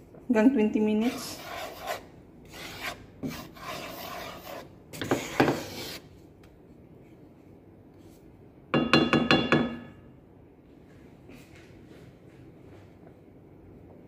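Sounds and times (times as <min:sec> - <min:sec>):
spatula scraping flour in pan: 0:01.0 - 0:06.1
spatula knocking against pan: 0:08.8 - 0:09.9.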